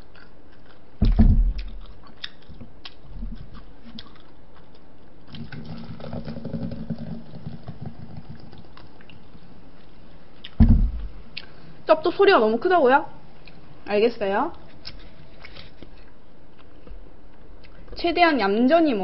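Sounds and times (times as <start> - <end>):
soda pouring into a cup: 5.3 - 9.5.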